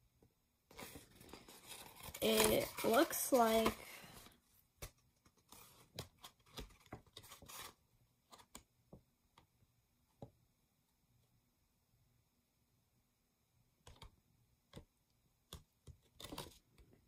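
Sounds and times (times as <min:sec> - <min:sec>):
paper scroll rustling and clicking: 0:00.7 - 0:03.8.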